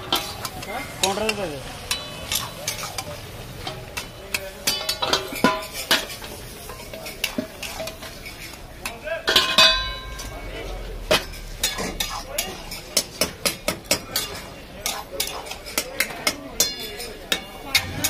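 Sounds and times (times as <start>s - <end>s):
meat sizzling in a wok: 0.0s - 8.7s
metal spatula scraping wok: 0.0s - 15.8s
metal clanks on wok: 0.0s - 18.0s.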